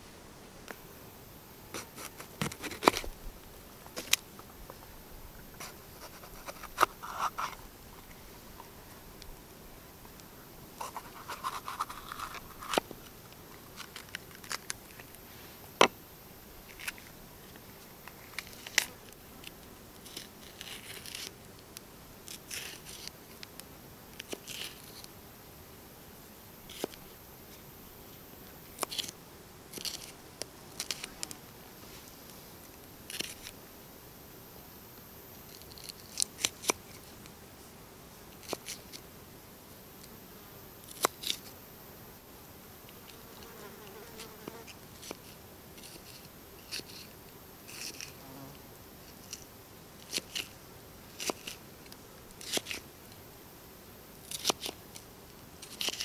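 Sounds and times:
knife cutting pepper: 10.8s - 12.8s.

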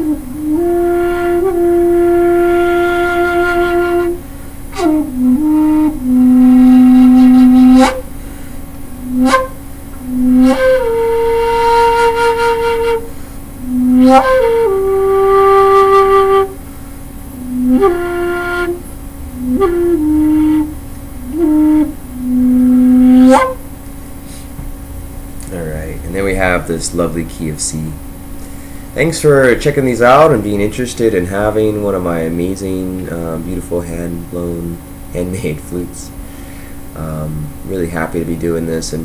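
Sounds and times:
bamboo flute long notes: 0.0s - 8.2s, 8.9s - 23.7s.

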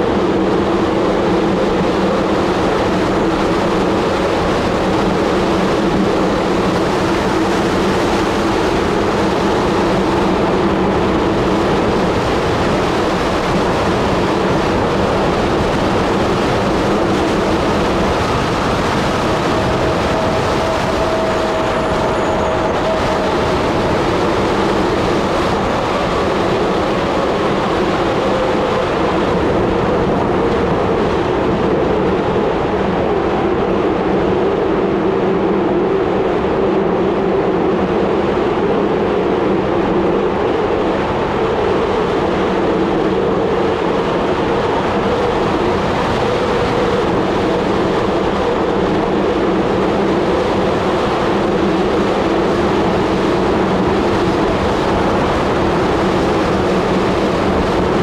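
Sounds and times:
bicycle tyre rumble: 0.0s - 58.0s
faint hum: 0.0s - 58.0s
wind on microphone: 0.0s - 58.0s.

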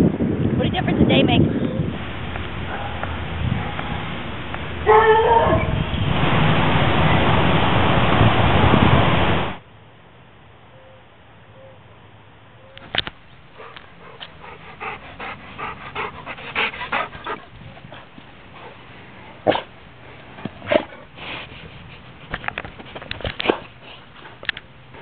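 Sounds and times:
dogs breathing and sniffing: 13.3s - 25.0s.

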